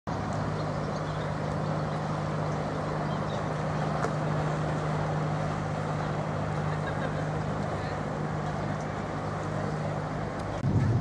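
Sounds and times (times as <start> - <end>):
boat engine humming: 0.1 - 11.0.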